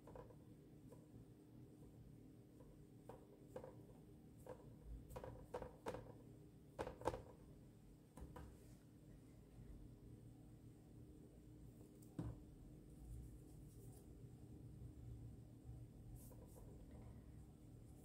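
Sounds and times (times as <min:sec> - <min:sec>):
paintbrush tapping and brushing on paper: 0:01.8 - 0:07.4, 0:11.8 - 0:14.4, 0:16.0 - 0:17.1.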